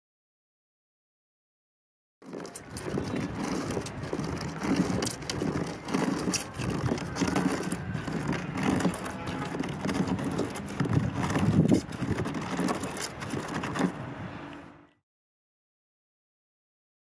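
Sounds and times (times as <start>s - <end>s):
stone grinding on stone: 2.2s - 14.0s.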